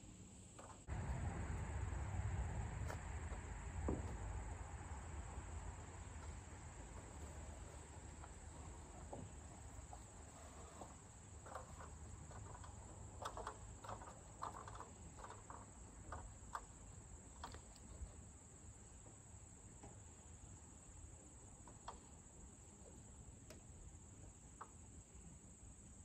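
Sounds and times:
crickets chirping: 0.0 - 26.0
wooden beam knocks and taps: 3.8 - 4.3.

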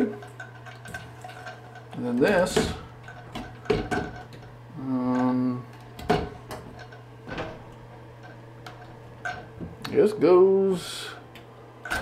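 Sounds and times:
shower fittings clicking and clinking: 0.0 - 9.6
steady low hum: 0.0 - 12.0.

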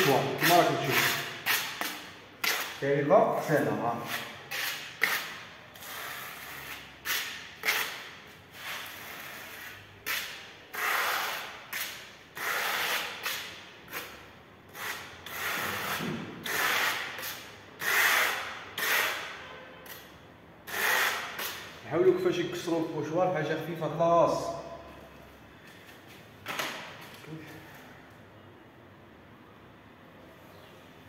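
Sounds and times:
spatula scraping paint on wall: 0.0 - 19.5, 20.6 - 21.7.

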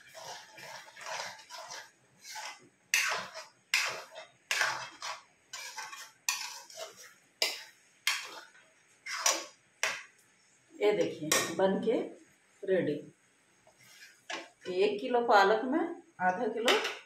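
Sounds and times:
metal spoon scraping a metal pan: 0.0 - 10.0, 13.7 - 14.8.

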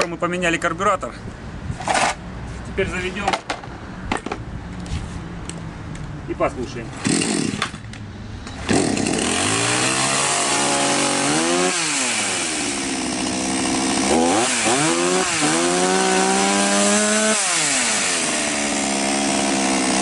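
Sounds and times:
chainsaw idling and revving: 6.9 - 7.8, 8.6 - 20.0.

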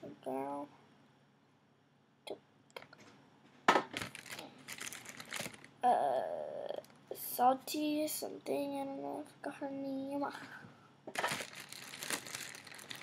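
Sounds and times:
plastic toys crinkling and rustling: 3.9 - 5.8, 11.1 - 13.0
girl vocal sound: 5.8 - 7.5.

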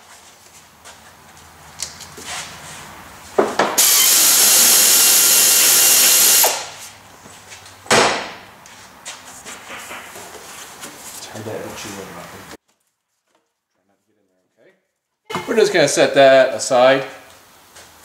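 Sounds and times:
power driver running: 3.8 - 6.7.

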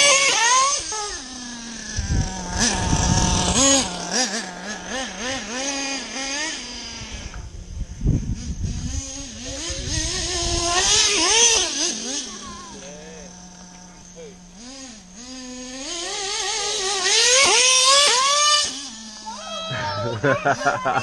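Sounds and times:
small model engine revving: 0.0 - 21.0
short low rumbles: 1.8 - 5.4.

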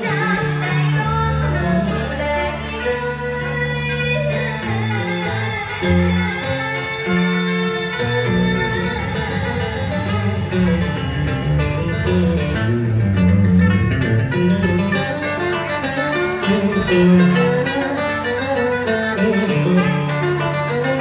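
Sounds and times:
plucked guitar melody: 0.0 - 21.0
sustained low keyboard and bass: 5.4 - 17.5.

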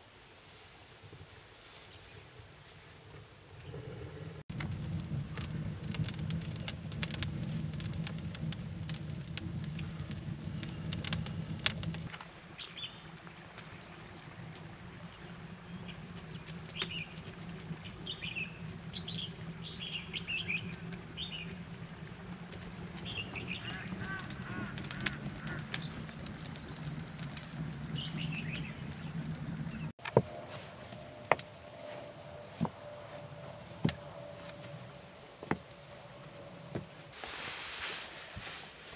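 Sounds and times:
wood fire crackling: 0.4 - 38.9
small birds chirping: 12.6 - 21.6, 22.9 - 30.0.

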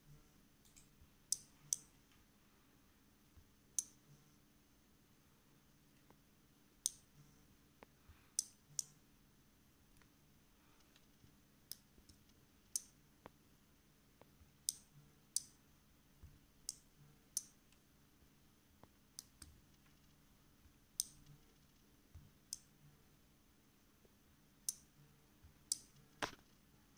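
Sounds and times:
faint low hum: 0.0 - 26.9.

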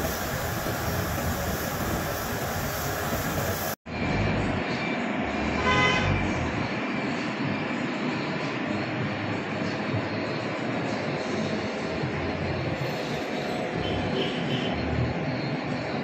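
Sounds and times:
paint booth air rush: 0.0 - 3.8
spray gun hissing: 0.0 - 3.8.

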